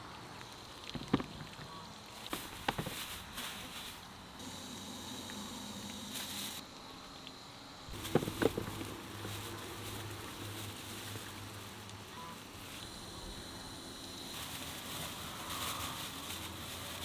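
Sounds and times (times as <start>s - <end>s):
faint steady hum: 0.0s - 17.0s
peppers knocking into plastic basin: 7.9s - 9.4s.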